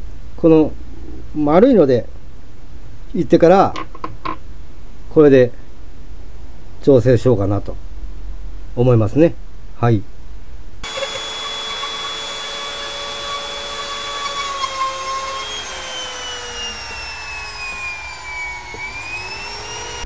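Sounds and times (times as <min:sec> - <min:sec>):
electric router cutting wood: 0:10.8 - 0:20.0.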